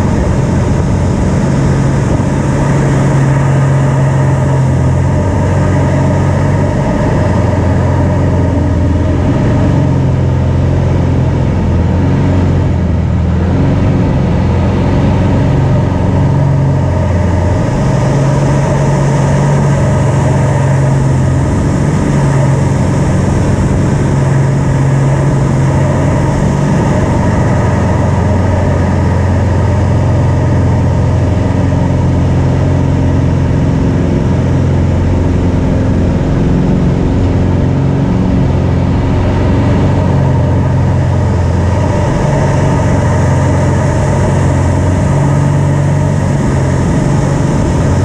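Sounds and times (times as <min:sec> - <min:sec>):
aircraft engine and propeller: 0:00.0 - 0:48.0.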